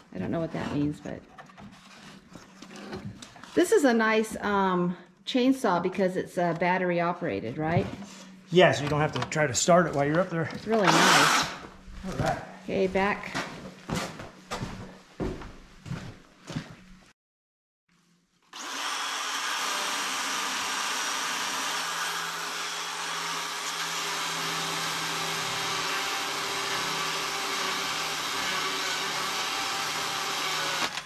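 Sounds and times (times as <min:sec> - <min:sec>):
electric motor hum: 0:10.6 - 0:12.5
chainsaw cutting wood: 0:10.8 - 0:11.6, 0:18.5 - 0:31.0.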